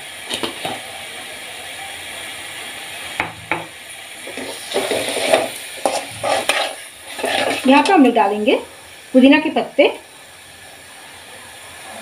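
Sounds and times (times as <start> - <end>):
paste sizzling in oil: 0.0 - 12.0
sharp knocks on wok: 3.2 - 3.7
spoon scraping and stirring: 4.2 - 8.0.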